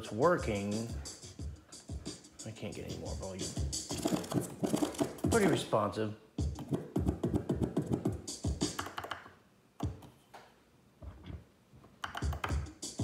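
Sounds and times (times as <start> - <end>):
electronic beat music: 0.0 - 5.7, 6.4 - 9.2, 12.0 - 13.0
controller buttons clicking: 12.0 - 12.6.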